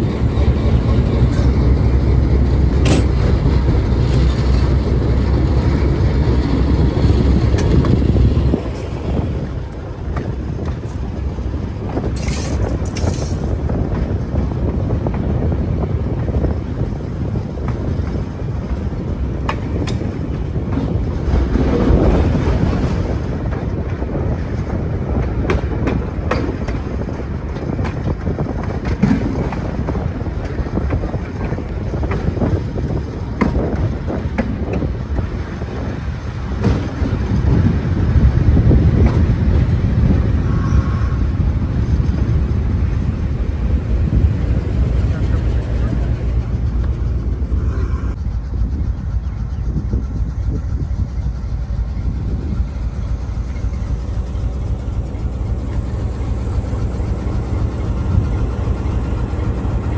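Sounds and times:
wheels clicking over rail joints: 0.0s - 47.6s
locomotive engine rumbling: 0.0s - 59.9s.

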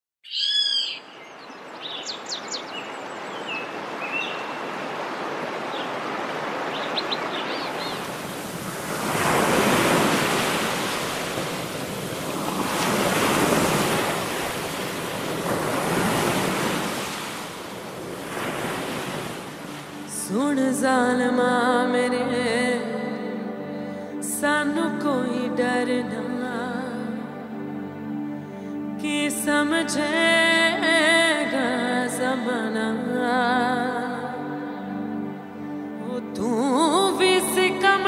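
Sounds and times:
birds chirping: 0.2s - 8.6s
water washing onto riverbank: 3.5s - 20.3s.

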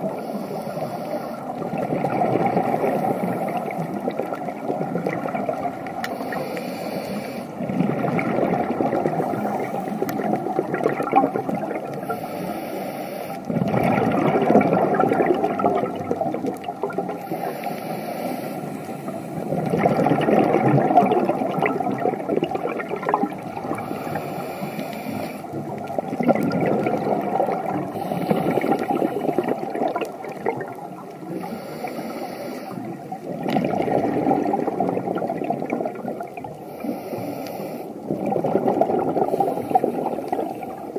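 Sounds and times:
exhaled bubbles rushing: 0.0s - 6.4s, 7.6s - 12.2s, 13.4s - 17.4s, 19.1s - 24.7s, 25.5s - 31.6s, 32.8s - 36.7s, 38.0s - 40.9s
regulator inhalation hiss: 0.1s - 1.5s, 6.1s - 7.6s, 12.0s - 13.4s, 17.2s - 19.4s, 23.8s - 25.6s, 27.9s - 29.3s, 31.3s - 33.0s, 36.6s - 38.0s.

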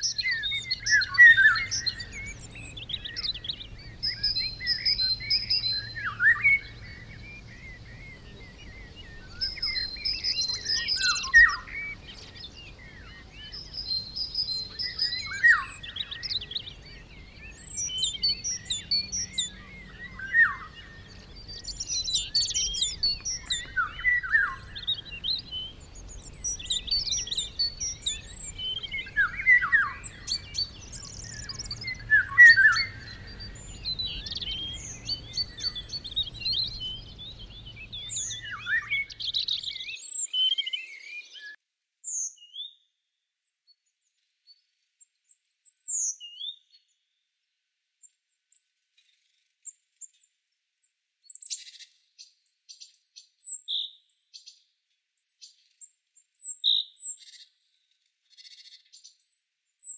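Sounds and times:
songbirds chirping and trilling: 0.0s - 42.9s.

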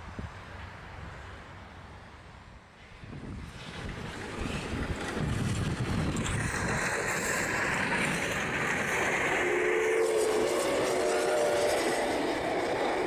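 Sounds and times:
steam locomotive passing: 0.0s - 13.0s
wind buffeting microphone: 2.9s - 13.0s.

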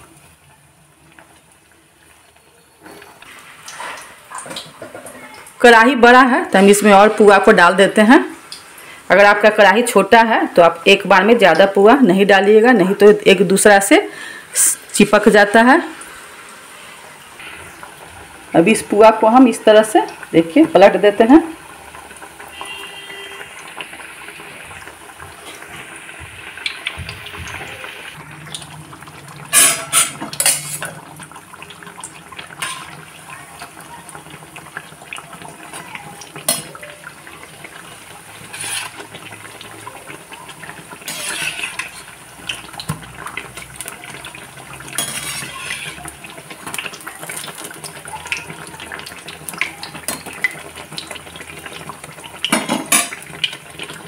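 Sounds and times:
oil sizzling and bubbling: 0.0s - 54.0s
metal spoon scraping pan: 29.5s - 30.9s, 32.6s - 33.0s, 38.4s - 39.1s, 41.0s - 42.2s, 44.9s - 46.1s.

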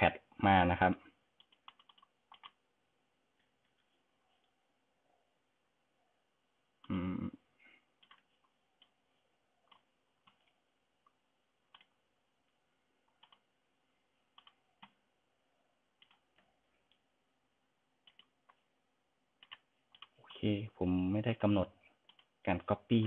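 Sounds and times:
computer mouse clicks: 1.4s - 2.6s, 8.0s - 9.0s, 9.7s - 12.0s, 13.1s - 13.5s, 14.3s - 15.0s, 16.0s - 17.0s, 18.0s - 18.6s, 19.4s - 20.2s, 22.0s - 22.3s.

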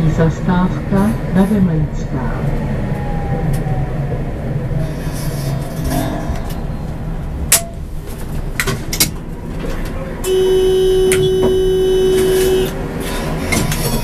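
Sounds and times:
tram cab hum: 0.0s - 14.0s
electronic warning tone: 10.2s - 12.8s.

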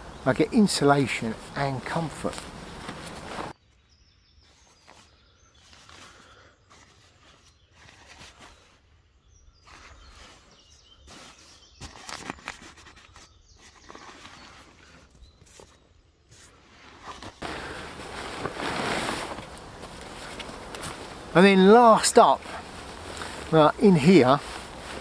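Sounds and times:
faint birdsong: 0.0s - 25.0s
nylon bags rustling: 1.8s - 3.6s, 16.8s - 25.0s.

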